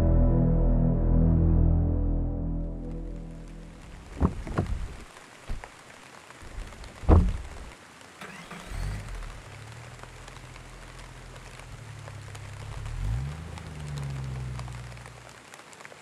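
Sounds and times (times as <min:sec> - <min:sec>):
background music: 0:00.0 - 0:03.8
car engine starting and running: 0:00.0 - 0:04.7, 0:08.2 - 0:15.4.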